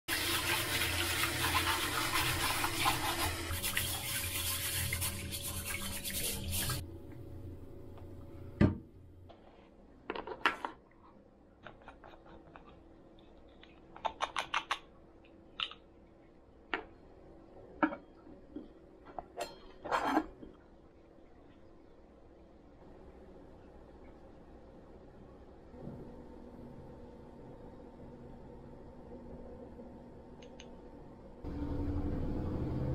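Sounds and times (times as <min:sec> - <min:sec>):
tap water running onto rice: 0:00.1 - 0:06.8.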